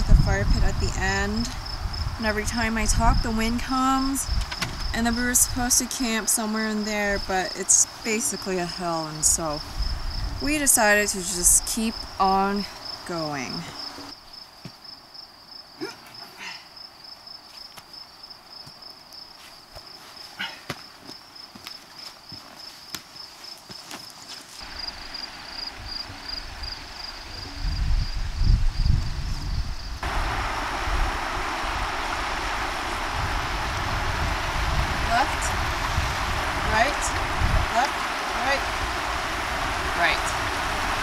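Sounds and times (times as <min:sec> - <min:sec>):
wind rumble on microphone: 0:00.0 - 0:14.0, 0:25.7 - 0:41.0
insect trilling: 0:24.6 - 0:30.2
moving water: 0:30.0 - 0:41.0.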